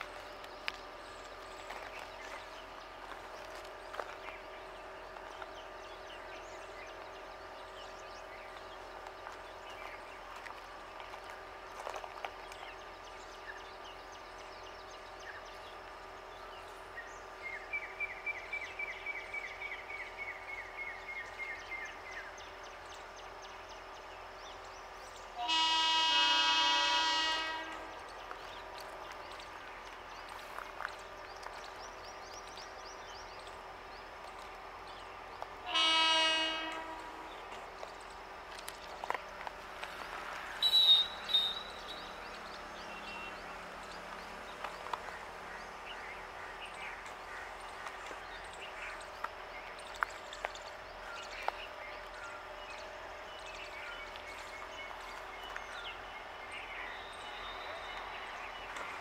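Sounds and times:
idling train hum: 0:00.0 - 0:59.0
train horn blasts: 0:25.3 - 0:28.1, 0:35.6 - 0:37.6, 0:40.6 - 0:42.1.

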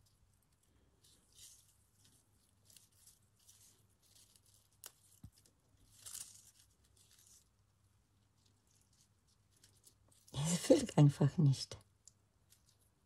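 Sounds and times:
leaves rustling: 0:01.0 - 0:05.2, 0:05.8 - 0:07.5.

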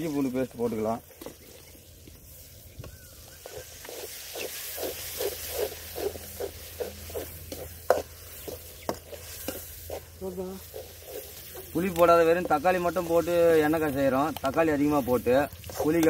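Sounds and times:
faint sizzle of frying: 0:00.0 - 0:16.0
metal ladle scraping a pan: 0:03.4 - 0:12.6.

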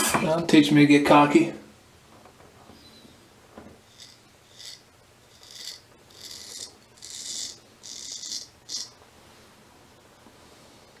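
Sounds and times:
razor scraping stubble: 0:03.9 - 0:09.0.

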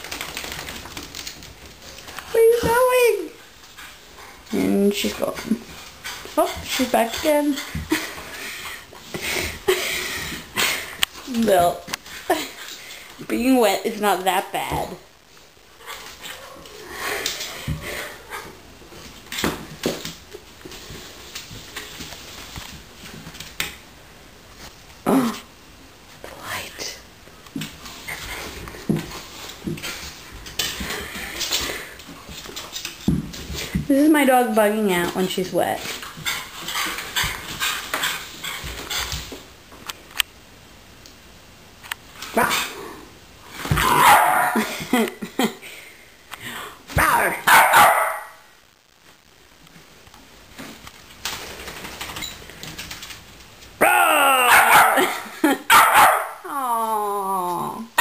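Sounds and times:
dog claws scrabbling: 0:00.0 - 0:02.3
dog barking: 0:43.8 - 0:44.7, 0:47.5 - 0:48.4, 0:54.5 - 0:56.4.

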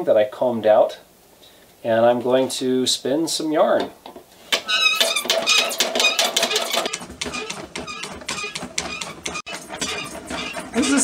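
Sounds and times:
spinning wheel clattering: 0:04.8 - 0:11.0.

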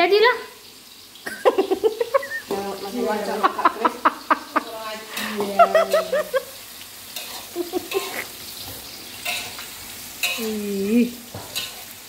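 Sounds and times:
bean sprouts sizzling in wok: 0:00.0 - 0:12.0
spatula scraping and knocking pan: 0:07.1 - 0:10.4, 0:11.3 - 0:11.9.

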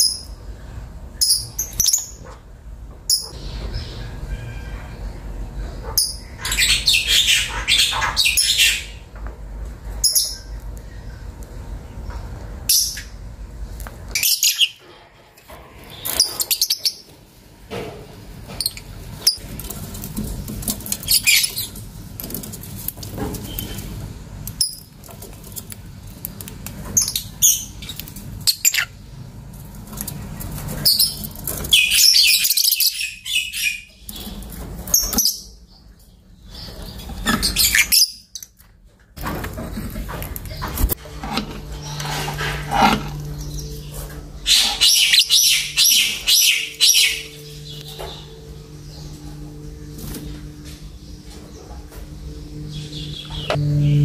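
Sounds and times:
lovebirds chirping: 0:30.0 - 0:38.6, 0:41.6 - 0:54.0
low steady rumble: 0:38.9 - 0:54.0.

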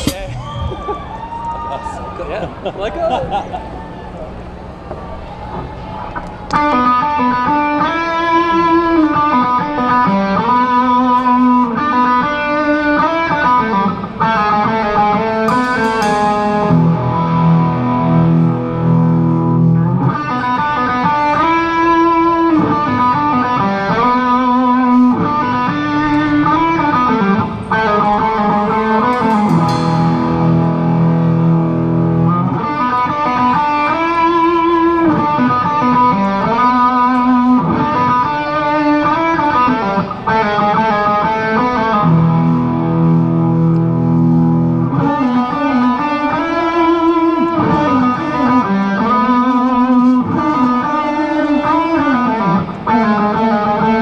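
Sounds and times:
live band with electric guitars: 0:00.0 - 0:54.0
cymbal crash: 0:15.5 - 0:19.0, 0:28.8 - 0:33.0.

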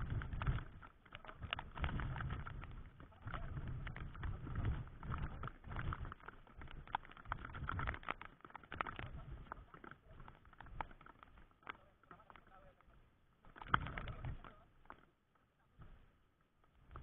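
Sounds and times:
wind buffeting microphone: 0:00.0 - 0:08.2
raindrops tapping on camera: 0:00.0 - 0:17.0.

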